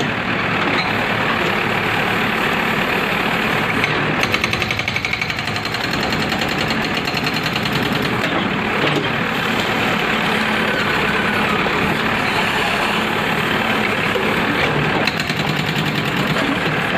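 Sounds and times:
excavator diesel engine running: 0:00.0 - 0:16.9
hydraulic breaker hammering: 0:04.2 - 0:09.1, 0:14.2 - 0:16.9.

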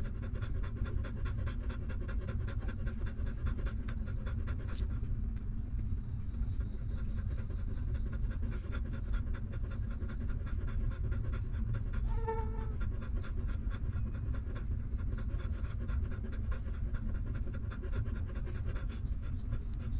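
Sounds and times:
dog panting: 0:00.0 - 0:19.9
dog whimper: 0:12.0 - 0:13.2.

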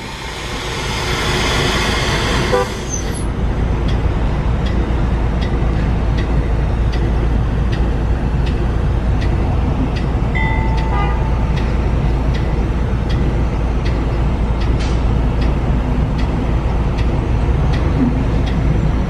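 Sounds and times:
locomotive engine rumble: 0:00.0 - 0:19.0.

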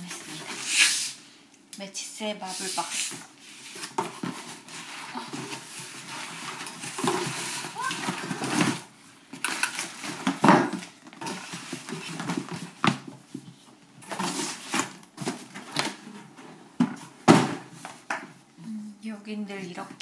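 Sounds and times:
cardboard boxes rustling and scraping: 0:02.4 - 0:18.1.

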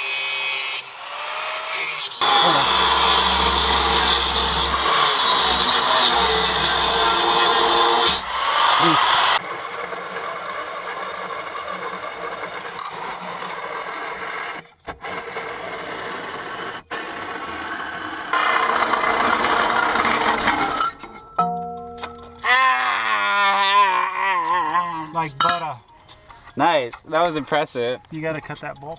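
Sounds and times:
angle grinder cutting steel: 0:00.0 - 0:21.1
reciprocating saw cutting bolt: 0:00.0 - 0:21.1.

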